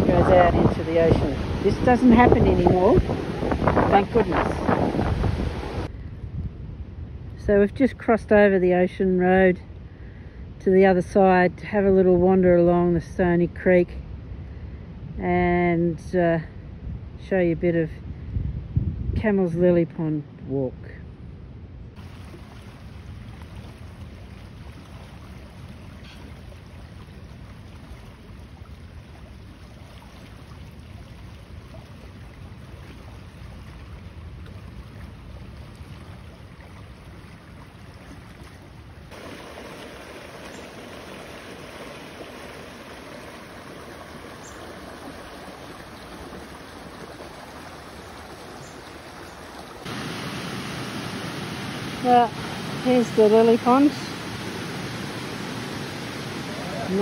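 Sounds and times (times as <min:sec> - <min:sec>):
creek rushing over rocks: 0:00.0 - 0:05.9, 0:21.9 - 0:57.0
wind buffeting microphone: 0:00.0 - 0:07.7, 0:16.5 - 0:19.7.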